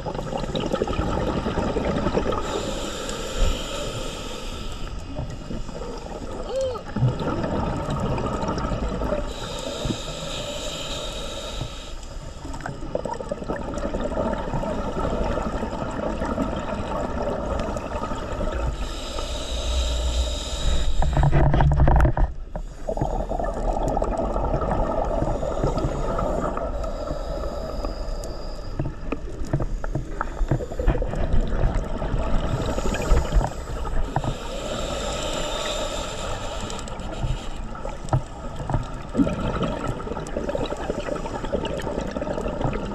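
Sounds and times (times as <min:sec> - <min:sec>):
diver exhaling bubbles: 0:00.0 - 0:04.0, 0:05.6 - 0:09.9, 0:12.7 - 0:19.1, 0:19.7 - 0:28.0, 0:38.5 - 0:42.9.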